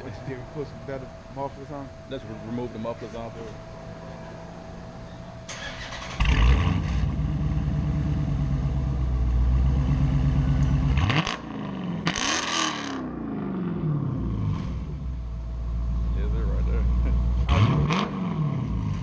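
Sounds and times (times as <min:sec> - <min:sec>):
car engine starting and idling: 0:00.0 - 0:19.0
engine revving: 0:00.0 - 0:19.0.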